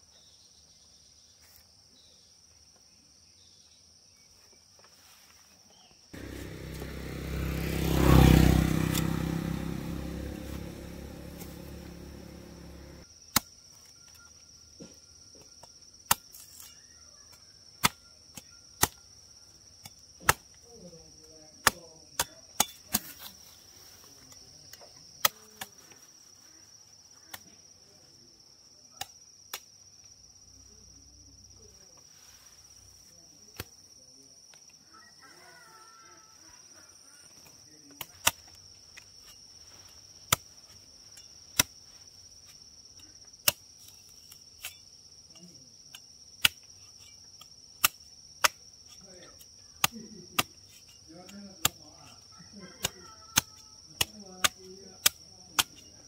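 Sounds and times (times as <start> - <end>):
sharp chopping strikes: 8.8 - 13.5.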